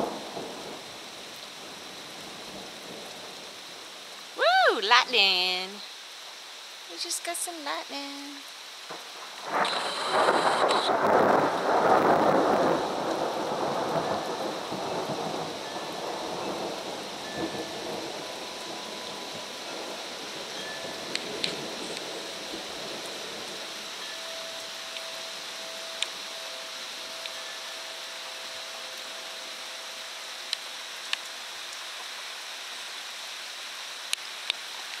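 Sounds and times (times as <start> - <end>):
rain falling on trees: 0.0 - 35.0
thunder rumble: 8.9 - 23.7.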